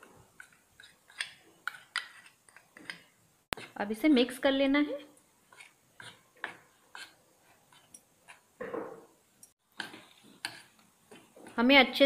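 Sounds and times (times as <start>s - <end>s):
spoon scraping ceramic bowl: 0.3s - 3.8s, 5.4s - 8.5s, 9.8s - 11.6s.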